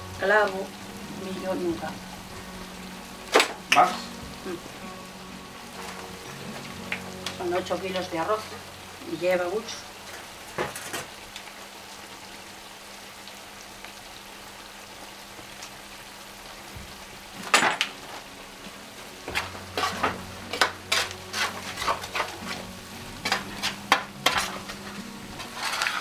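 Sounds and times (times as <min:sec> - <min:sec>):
food sizzling in a pan: 0:00.0 - 0:26.0
metal ladle scraping a pan: 0:19.3 - 0:26.0.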